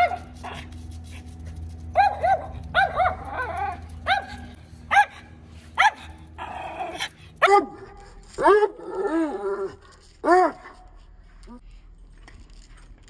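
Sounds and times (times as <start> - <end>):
dog barking high-pitched: 2.0 - 6.2.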